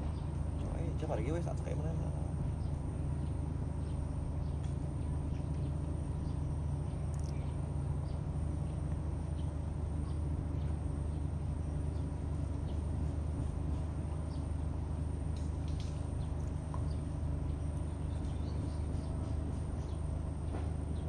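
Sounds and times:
steady low rumble: 0.0 - 21.0
faint bird chirps: 2.6 - 12.9, 16.2 - 20.1.

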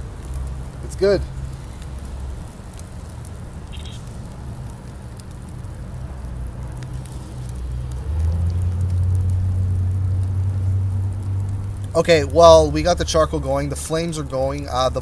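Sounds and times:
charcoal fire crackling: 0.0 - 15.0.

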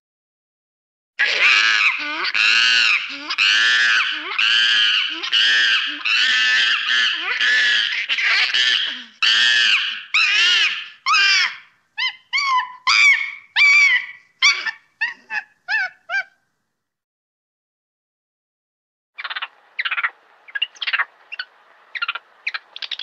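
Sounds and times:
monkey screaming: 1.2 - 16.4.

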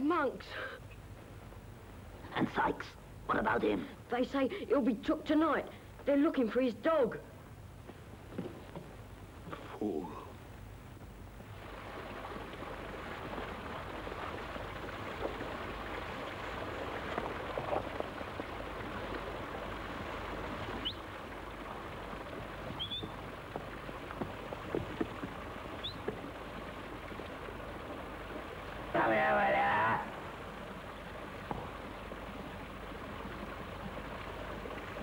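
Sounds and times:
water running: 11.4 - 35.0.

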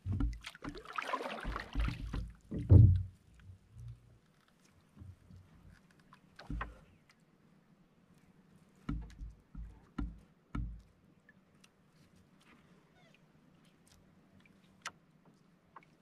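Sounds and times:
water dripping and splashing: 0.0 - 7.2
dull knocks on boat hull: 1.4 - 3.1, 8.9 - 10.8.

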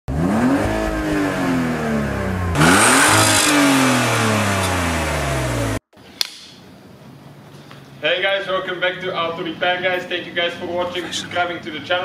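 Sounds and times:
car engine revving: 0.1 - 5.8.

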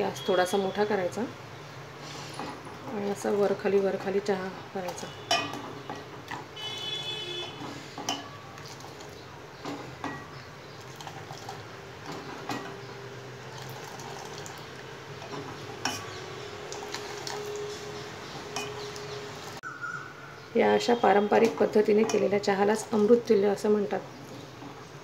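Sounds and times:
ladle clinking against pot: 4.9 - 6.5, 7.6 - 8.8, 15.2 - 16.2, 18.5 - 18.9
liquid pouring and splashing: 7.8 - 9.3, 10.7 - 12.5, 13.4 - 19.6.

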